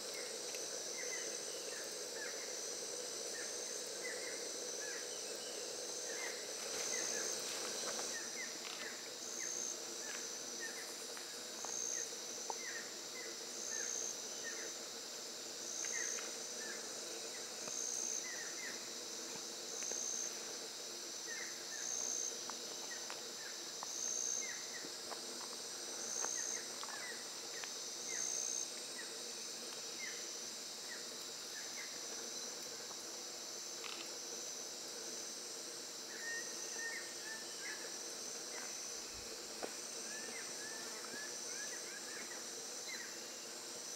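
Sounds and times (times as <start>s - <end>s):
insects buzzing: 0.0s - 43.9s
pulsing insect call: 0.0s - 43.9s
short insect chirps: 25.5s - 43.9s.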